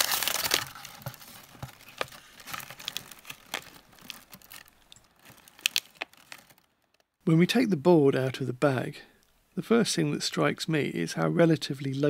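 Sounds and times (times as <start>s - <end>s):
paper and plastic bag rustling: 0.0s - 7.0s
sharp crackles: 0.0s - 7.1s.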